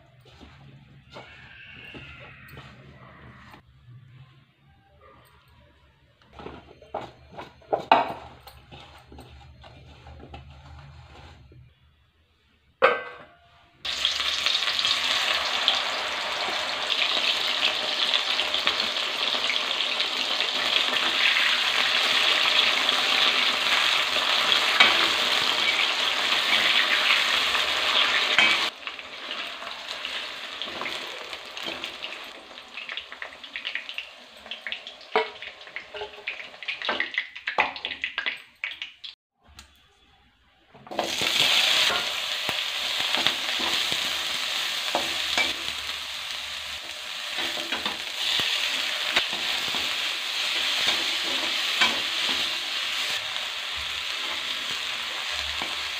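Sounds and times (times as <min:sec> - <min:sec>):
spatula scraping and knocking pan: 0:00.1 - 0:03.6, 0:06.4 - 0:11.7
mushrooms sizzling in hot oil: 0:13.9 - 0:38.1, 0:41.0 - 0:55.9.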